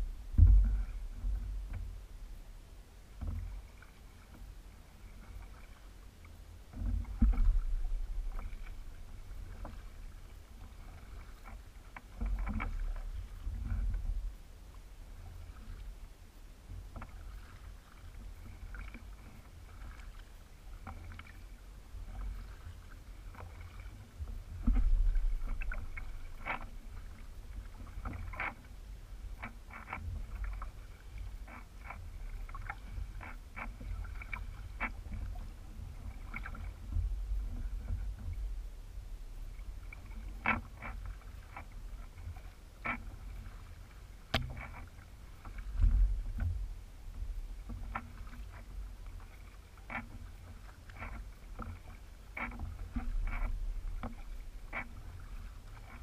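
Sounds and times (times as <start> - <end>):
low thumps: 0.0 - 2.0
paddle splashes and drips: 0.0 - 2.5, 3.1 - 56.0
steady low rumble: 0.0 - 11.0, 12.4 - 17.0, 32.1 - 40.4, 43.6 - 49.5.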